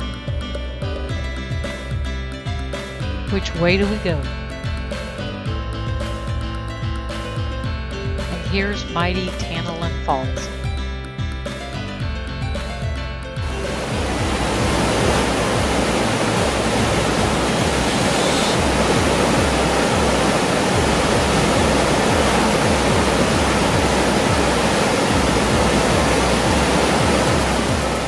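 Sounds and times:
waterfall rushing: 0:13.4 - 0:28.0.

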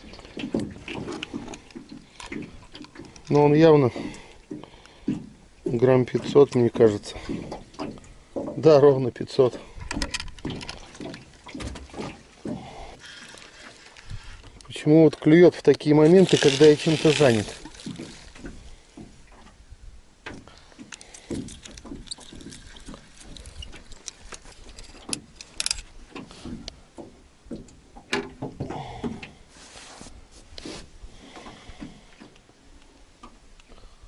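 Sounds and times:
rustling: 0:13.0 - 0:14.8, 0:15.8 - 0:19.3, 0:29.5 - 0:30.9.

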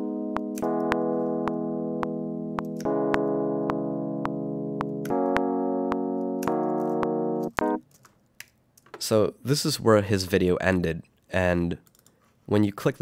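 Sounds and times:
electric piano chords: 0:00.0 - 0:07.8
metronome clicking: 0:00.4 - 0:07.8.

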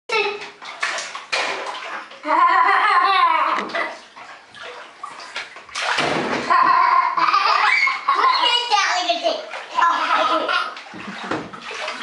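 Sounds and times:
bathwater splash: 0:00.1 - 0:12.0
child squealing: 0:07.5 - 0:08.6.

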